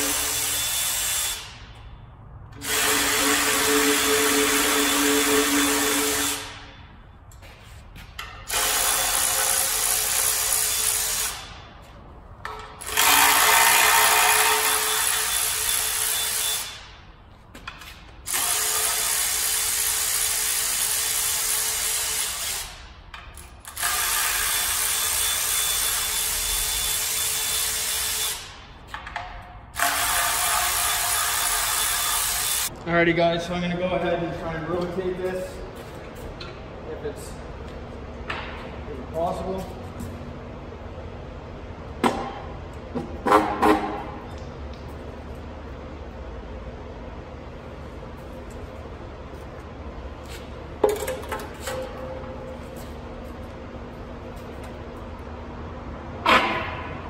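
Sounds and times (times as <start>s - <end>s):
cordless power tool spinning bolts: 2.6s - 6.5s, 8.5s - 11.5s, 12.8s - 16.7s.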